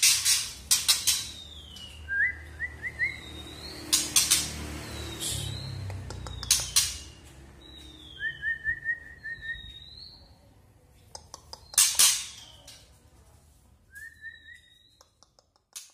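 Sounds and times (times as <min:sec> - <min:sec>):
bird singing whistles: 0:01.3 - 0:03.9, 0:07.6 - 0:10.1, 0:13.9 - 0:15.0.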